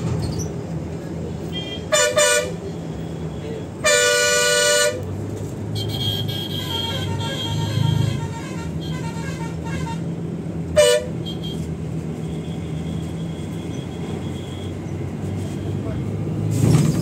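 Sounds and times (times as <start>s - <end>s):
bus engine and road hum: 0.0s - 17.0s
bus horn blast: 1.5s - 2.7s, 3.8s - 5.1s, 5.7s - 10.2s, 10.8s - 11.7s.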